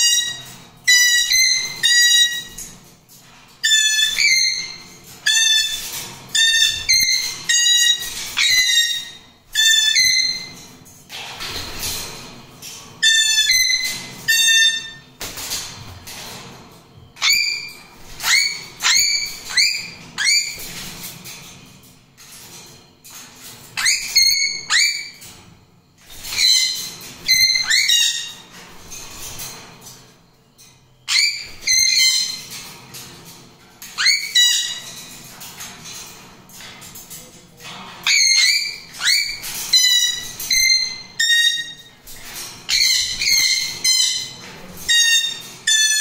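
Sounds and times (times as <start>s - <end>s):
parrots whistling: 6.4s - 10.5s.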